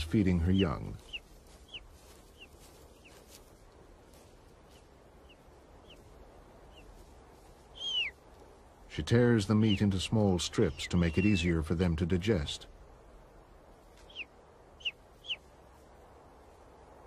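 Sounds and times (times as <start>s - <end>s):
eagle chicks cheeping: 0.0s - 3.3s, 4.8s - 7.0s, 7.6s - 8.2s, 9.5s - 11.6s, 14.0s - 15.5s.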